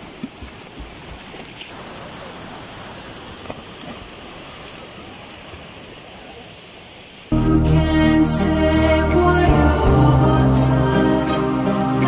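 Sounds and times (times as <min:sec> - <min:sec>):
swimmers splashing: 0:00.0 - 0:07.3
water rushing: 0:00.0 - 0:12.0.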